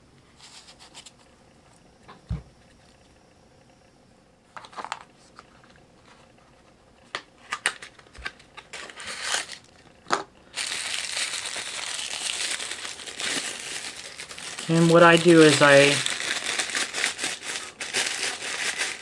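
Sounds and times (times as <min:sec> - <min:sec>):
tissue paper crinkling: 0:08.7 - 0:09.7, 0:10.5 - 0:19.0.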